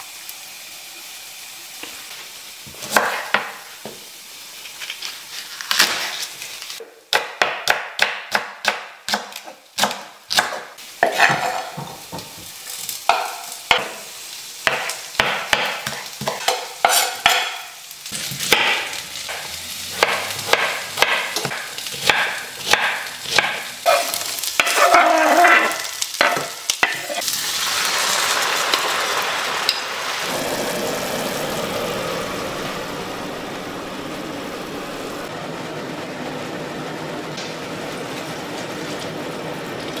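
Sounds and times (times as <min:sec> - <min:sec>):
vegetables sizzling in a pan: 0:00.0 - 0:06.8, 0:07.8 - 0:40.0
knife chopping on wooden board: 0:07.1 - 0:12.2, 0:20.0 - 0:23.7.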